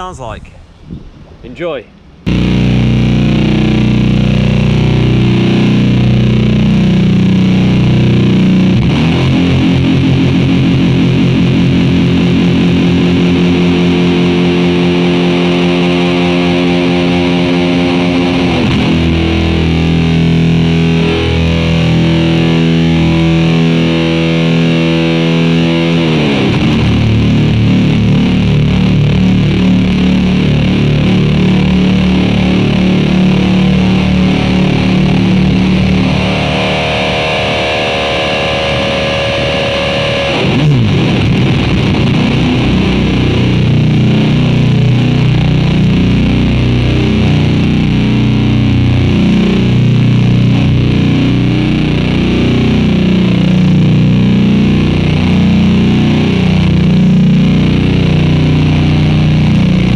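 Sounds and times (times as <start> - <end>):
distorted electric guitar chords: 2.0 - 59.9.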